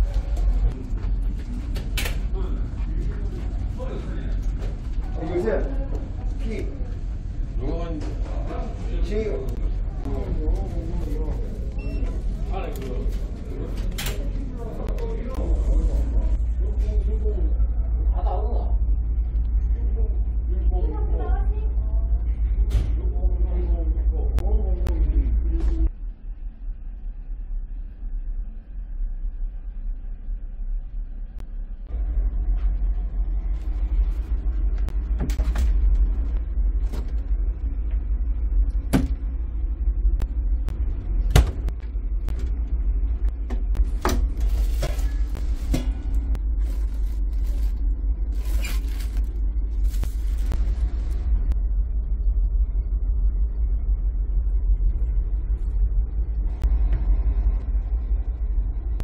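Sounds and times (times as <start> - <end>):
ship engines low rumble: 0.0 - 59.0.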